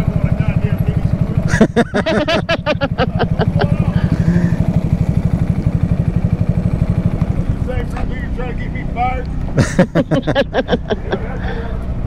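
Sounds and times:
motorcycle engine idling: 0:00.0 - 0:12.0
person speaking: 0:02.0 - 0:04.7.

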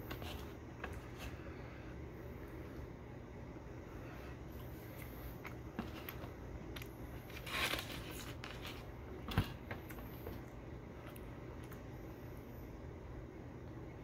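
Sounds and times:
rustling: 0:07.2 - 0:10.4.

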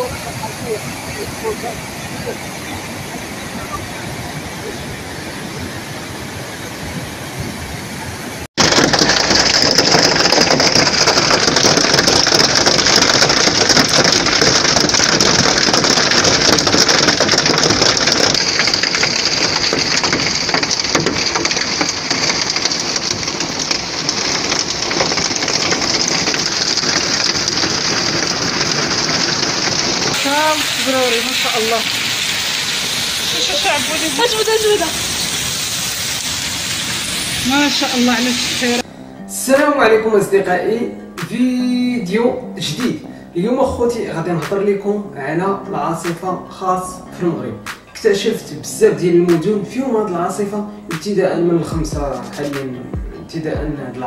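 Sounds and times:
floodwater rushing: 0:00.0 - 0:38.8
hail and rain pelting ground: 0:08.5 - 0:38.9.

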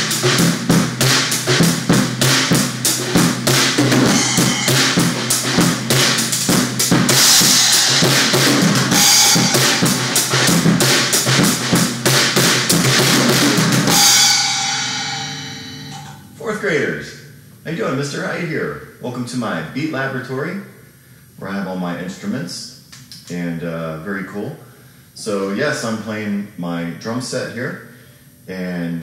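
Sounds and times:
cymbal crashes: 0:00.0 - 0:16.5
drum kit groove with rods: 0:00.0 - 0:16.5.

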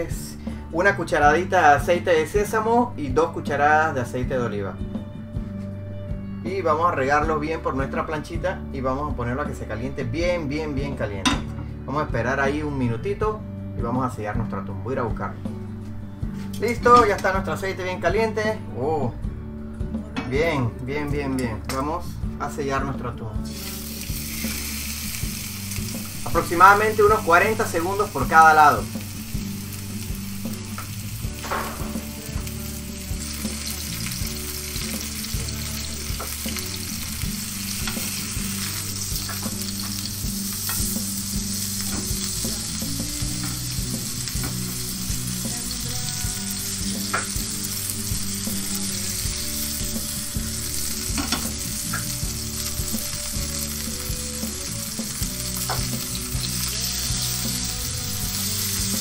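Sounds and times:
fish searing in hot oil: 0:23.4 - 0:59.0.

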